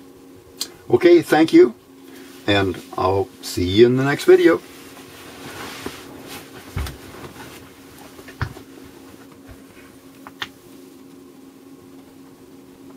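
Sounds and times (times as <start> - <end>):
faint hum: 0.0 - 12.9.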